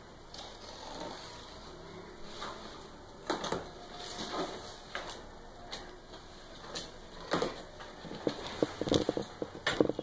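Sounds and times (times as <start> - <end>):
cardboard rustling: 0.4 - 5.3.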